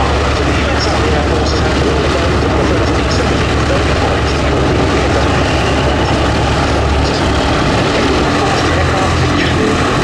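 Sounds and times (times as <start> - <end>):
propeller engine idling: 0.0 - 10.0.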